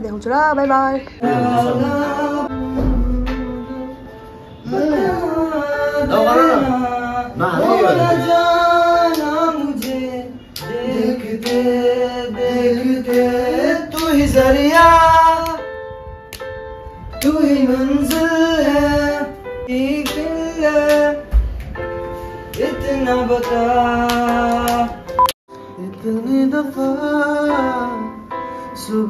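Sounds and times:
instrumental backing: 0.0s - 29.0s
person singing: 1.2s - 15.7s.

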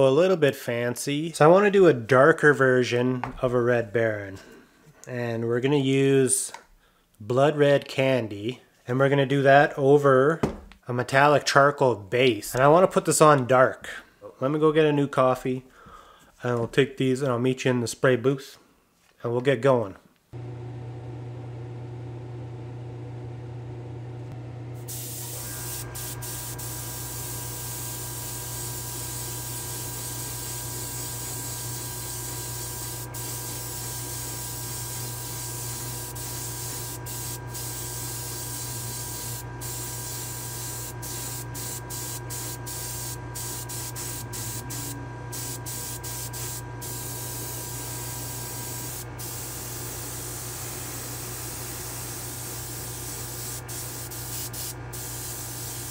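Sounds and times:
airbrush hissing: 24.9s - 55.9s.

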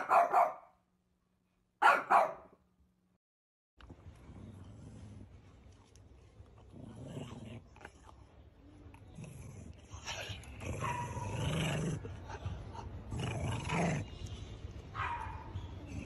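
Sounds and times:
dog growling: 6.6s - 8.2s, 9.0s - 14.2s.

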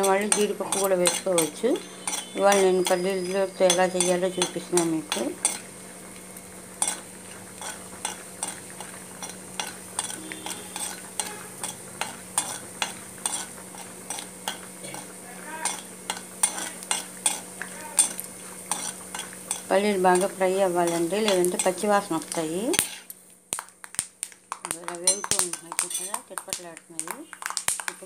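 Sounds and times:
metal spatula scraping a pan: 0.0s - 5.7s, 7.6s - 23.1s, 25.1s - 26.2s
oil sizzling: 0.0s - 28.0s.

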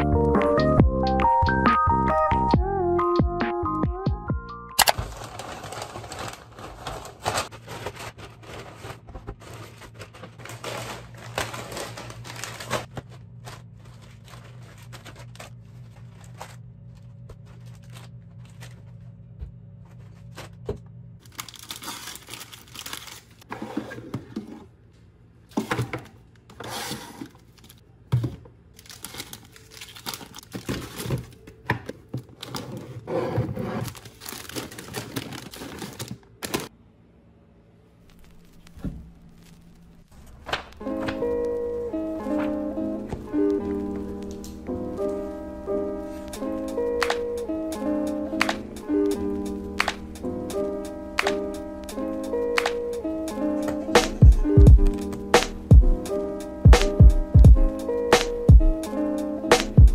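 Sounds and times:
plastic packets crinkling: 4.8s - 19.0s, 21.2s - 23.4s, 28.8s - 33.1s, 33.7s - 36.7s, 38.0s - 41.6s
low steady hum: 4.8s - 23.4s
paper bag rustling: 4.8s - 23.5s, 28.8s - 36.7s, 38.0s - 47.4s.

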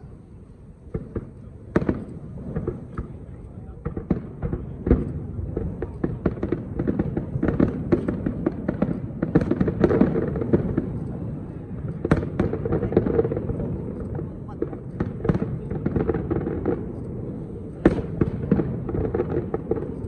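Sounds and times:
firework shells bursting: 0.9s - 11.2s.

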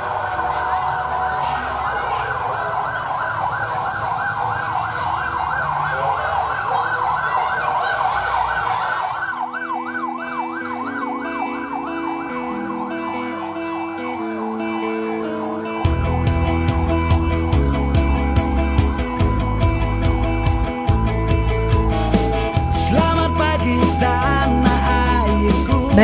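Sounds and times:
electronic siren yelping: 0.0s - 26.0s
traffic rumble: 0.0s - 26.0s
steady music tones: 9.4s - 26.0s.

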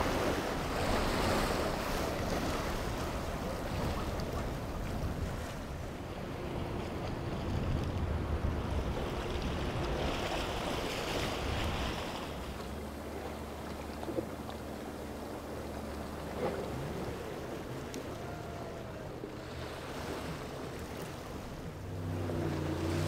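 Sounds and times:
wind on microphone: 0.0s - 12.8s
boat engines humming: 0.0s - 23.0s
surf: 0.0s - 23.0s.

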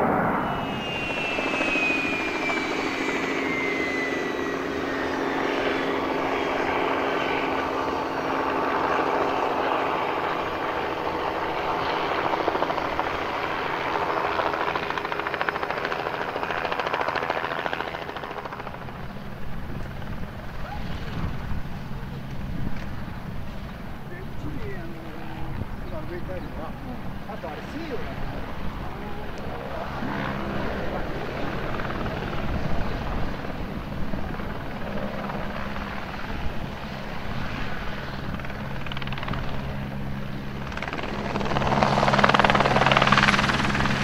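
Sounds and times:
high whine gliding down: 0.0s - 16.5s
turbine engine drone: 0.0s - 16.7s.

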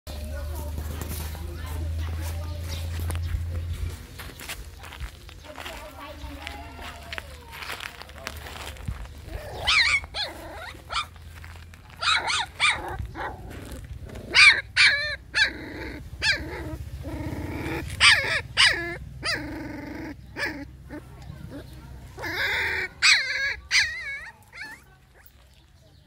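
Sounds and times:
puppy yelping and whining: 9.4s - 11.2s, 12.0s - 13.4s, 14.2s - 24.9s.

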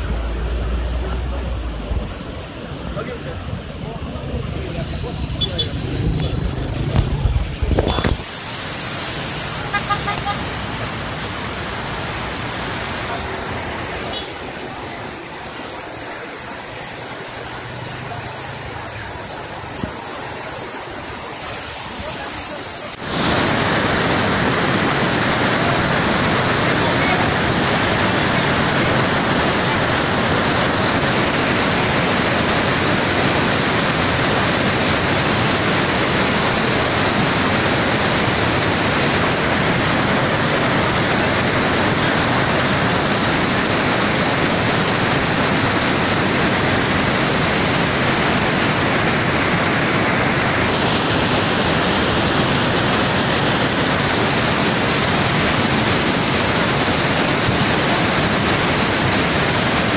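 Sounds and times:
floodwater rushing through floodgate: 0.0s - 59.9s.

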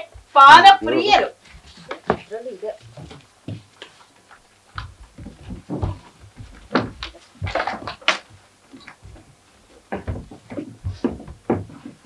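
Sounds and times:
furniture and props knocking: 1.6s - 3.7s, 4.8s - 12.0s.

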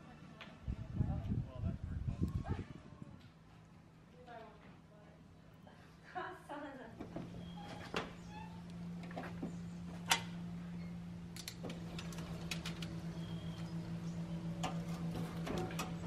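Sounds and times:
steady low hum: 6.9s - 16.0s.

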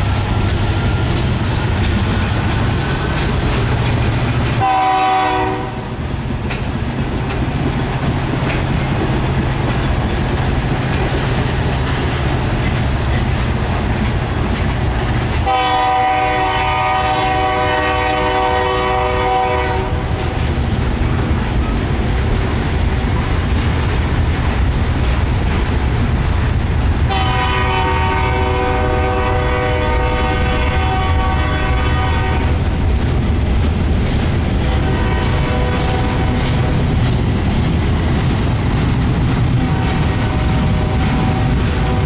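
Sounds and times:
freight train rumble and wheel clatter: 0.0s - 42.0s
locomotive horn blasts: 4.6s - 5.9s, 15.4s - 20.0s, 27.1s - 32.6s, 34.6s - 36.5s, 40.2s - 42.0s.

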